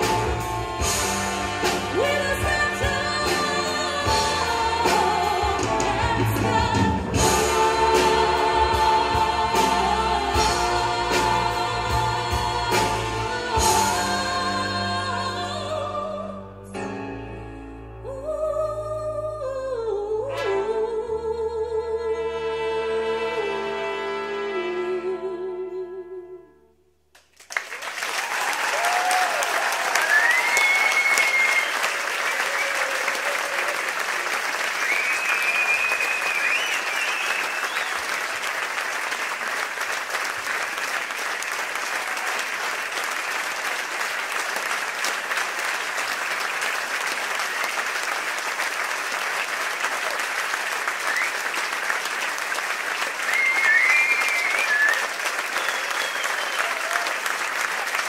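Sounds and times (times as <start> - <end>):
music: 0.0 - 27.1
audience applauding: 27.2 - 58.0.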